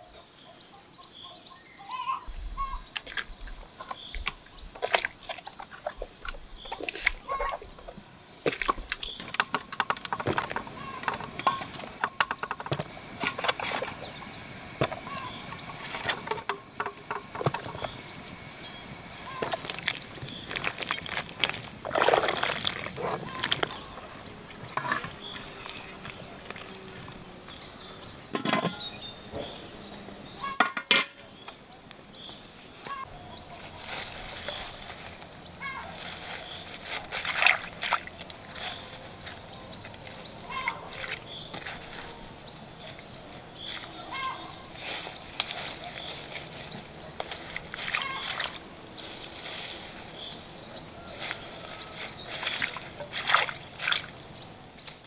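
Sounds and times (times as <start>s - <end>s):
small bird chirping: 0.0s - 10.0s, 10.6s - 21.8s, 22.4s - 55.0s
water splashing and sloshing: 3.0s - 27.2s, 33.8s - 39.0s, 39.9s - 42.1s, 43.6s - 50.0s, 51.0s - 55.0s.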